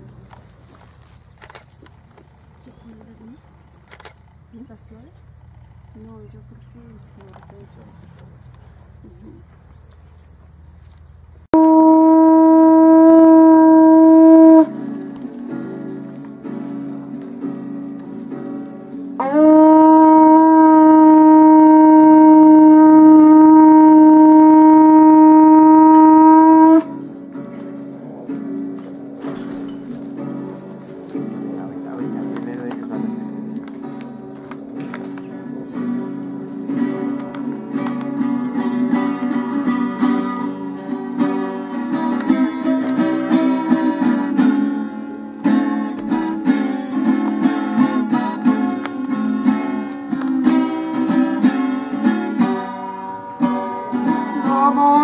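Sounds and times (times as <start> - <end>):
horn blowing long note: 11.6 - 15.0, 19.2 - 27.4, 49.4 - 55.0
strummed guitar: 11.6 - 55.0.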